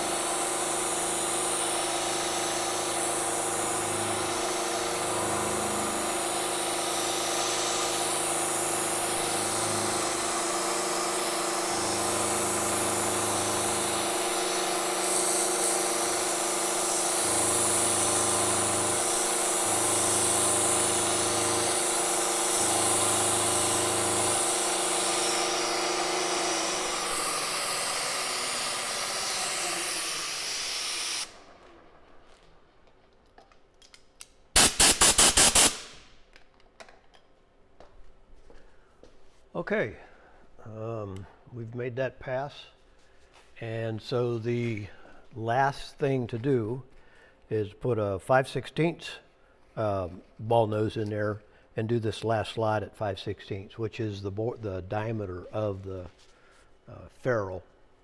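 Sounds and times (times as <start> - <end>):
milling machine motor hum: 0.0 - 31.4.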